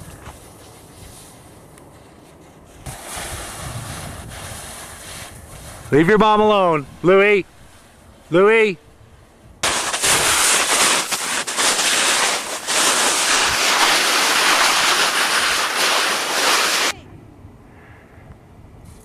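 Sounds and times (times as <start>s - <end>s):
snow hissing under a board: 0.0s - 1.6s, 2.7s - 6.0s, 9.6s - 17.0s
wind on microphone: 2.8s - 8.2s.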